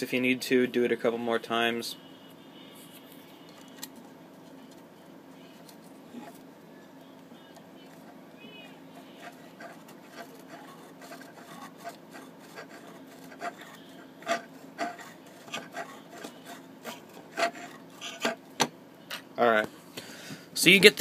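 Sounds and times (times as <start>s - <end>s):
sandpaper rasping on metal: 9.2s - 18.4s.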